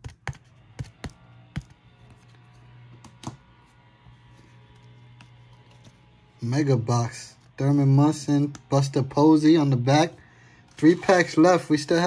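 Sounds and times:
trading cards clicking and tapping: 0.0 - 1.8
faint background music: 0.0 - 12.0
low hum: 0.0 - 12.0.

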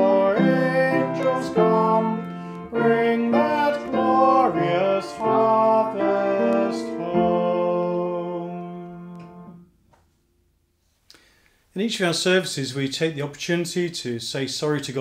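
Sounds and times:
man singing: 0.0 - 9.6
upright piano: 0.0 - 9.7.

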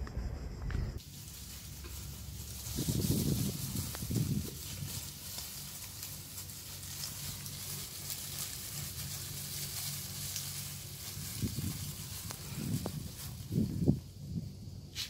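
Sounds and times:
dull low thumps: 0.0 - 1.0
steady high hiss: 0.0 - 15.0
crackles of dry leaf litter: 1.0 - 15.0.

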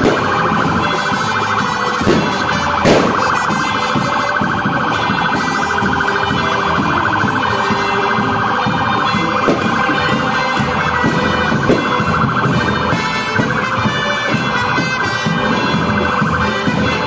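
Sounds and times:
electronic siren warbling: 0.0 - 14.4
street crowd noise: 0.0 - 17.0
sharp bang: 2.0 - 4.0.

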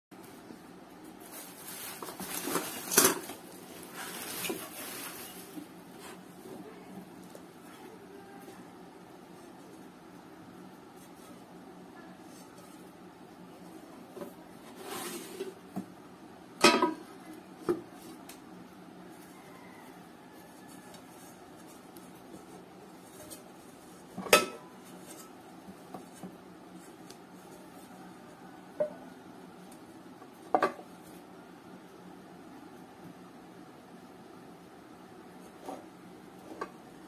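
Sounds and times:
metal pans clanking: 16.6 - 17.1, 24.2 - 24.8.

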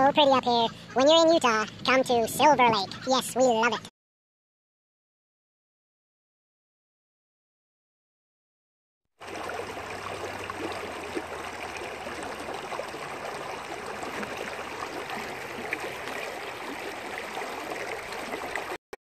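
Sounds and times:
creek flowing over stones: 9.2 - 18.8.

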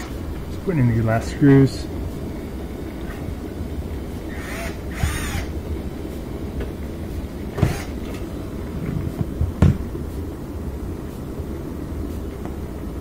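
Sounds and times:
dishwasher motor hum: 0.0 - 13.0
cordless drill driving screws: 4.3 - 5.5, 7.6 - 8.0.

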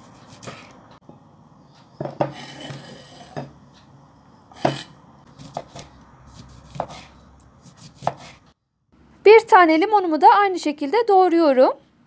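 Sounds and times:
knife scraping cutting board: 0.0 - 0.8, 2.1 - 3.5, 4.5 - 8.6.

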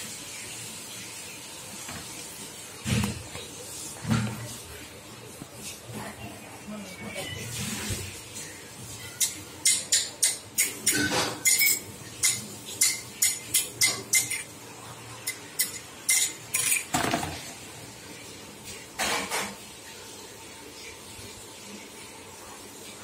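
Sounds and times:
plastic tray clattering on marble: 16.6 - 17.5.

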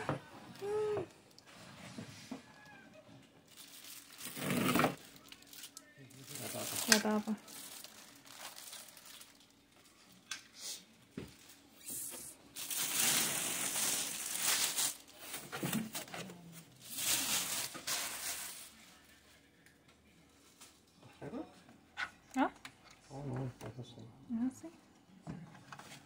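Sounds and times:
plastic wrapping crinkling: 3.5 - 10.3, 12.5 - 19.1.

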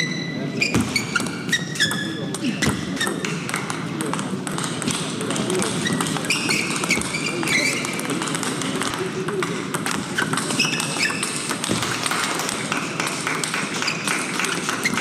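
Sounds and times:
ping pong ball clicking: 3.0 - 15.0.

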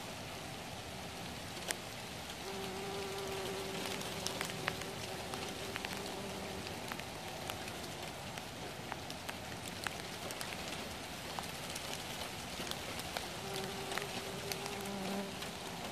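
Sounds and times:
light rain pattering on leaves: 0.0 - 15.9
bumblebee wing buzz: 2.4 - 7.0, 13.4 - 15.6.

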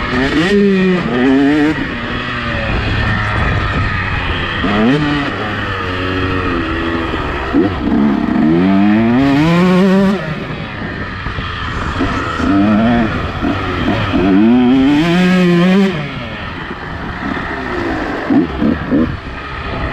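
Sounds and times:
motocross bike engine accelerating: 0.0 - 19.9.

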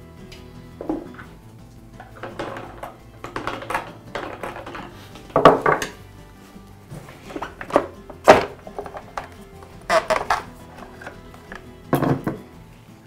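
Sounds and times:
quiet background music: 0.0 - 13.0
hard plastic clattering: 2.0 - 6.0, 6.9 - 12.4.

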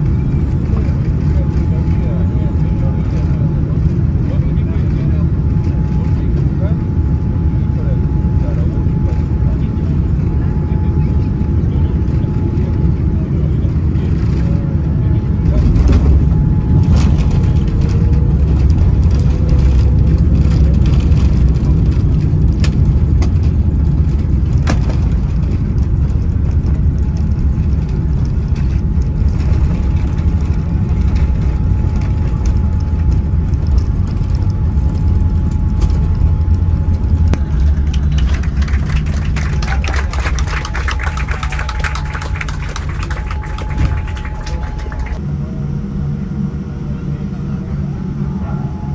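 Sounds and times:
low rumble of engines and airflow: 0.0 - 48.9
faint steady whine: 25.3 - 48.9.

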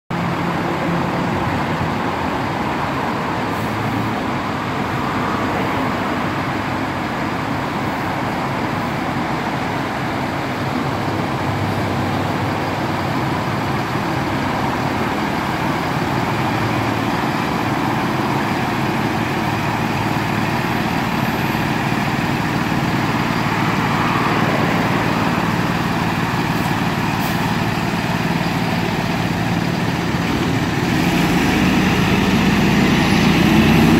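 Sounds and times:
diesel truck engines running: 0.1 - 33.9.

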